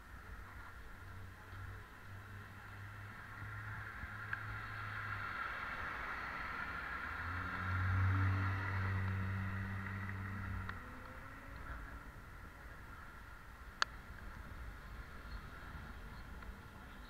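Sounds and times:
car driving past: 0:02.4 - 0:12.5.

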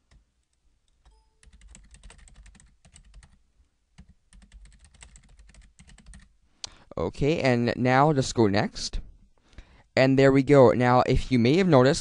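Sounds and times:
computer keyboard typing: 0:00.0 - 0:03.4, 0:04.0 - 0:06.3.

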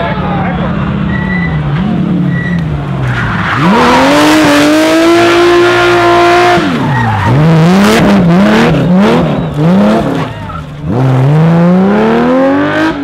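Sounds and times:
car engine revving: 0:00.3 - 0:13.0
tyres squealing: 0:06.4 - 0:11.2.

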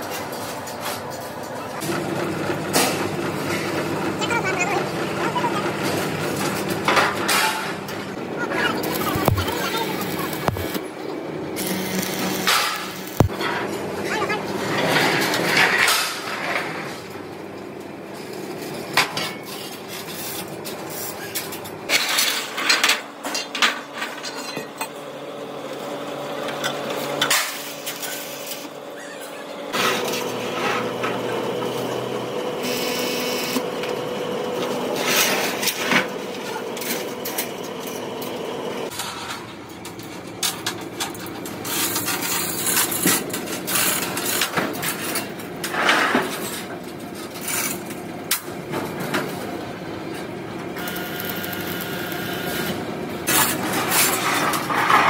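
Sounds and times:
machine hum: 0:01.8 - 0:13.8, 0:49.2 - 0:55.0.

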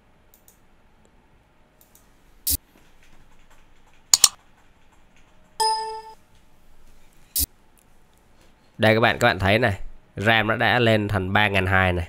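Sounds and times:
sharp clicks: 0:04.1 - 0:04.4.

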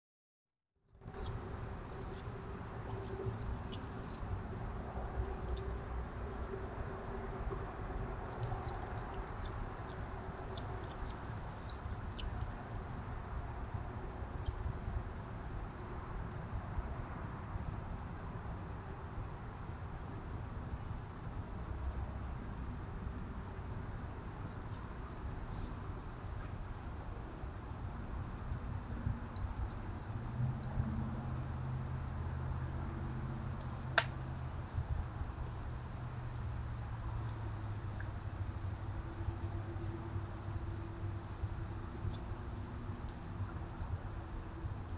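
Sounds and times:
crickets chirping: 0:00.9 - 0:44.9
low rumbling hum: 0:01.0 - 0:17.0.

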